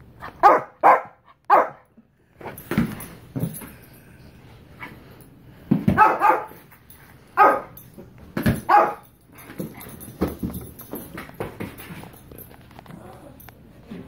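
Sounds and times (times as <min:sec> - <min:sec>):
dog barking: 0:00.4 - 0:01.8, 0:06.0 - 0:06.6, 0:07.4 - 0:07.8, 0:08.7 - 0:09.1.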